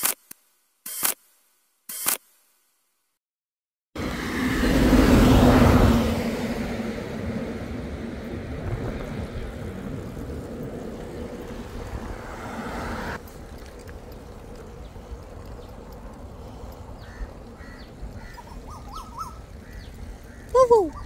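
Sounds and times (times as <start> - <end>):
vehicle passing close: 4.0 - 20.3
steady traffic noise: 4.0 - 21.0.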